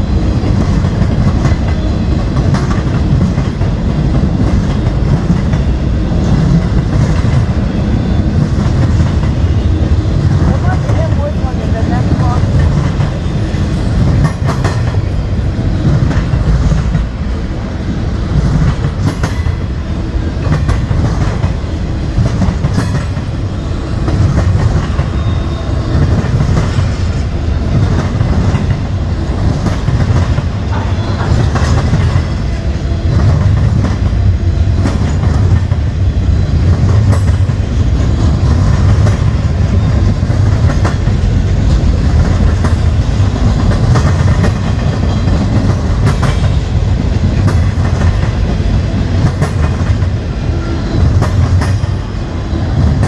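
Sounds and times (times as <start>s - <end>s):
freight train wheels rumbling: 0.0s - 53.0s
wheels clacking over rail joints: 0.4s - 9.6s, 10.2s - 17.2s, 18.3s - 23.4s, 24.0s - 36.0s, 36.6s - 52.1s.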